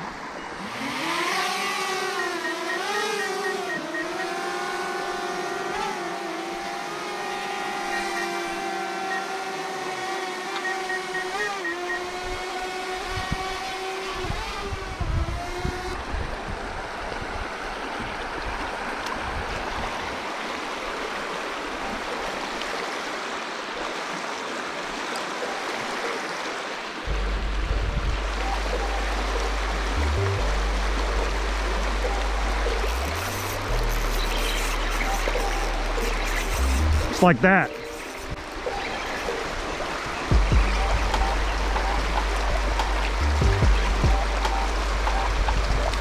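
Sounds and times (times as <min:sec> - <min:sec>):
drone buzzing overhead: 0:00.0 - 0:20.2, 0:25.4 - 0:46.0
river water rushing: 0:00.0 - 0:46.0
background music with heavy bass: 0:27.1 - 0:39.6, 0:40.2 - 0:46.0.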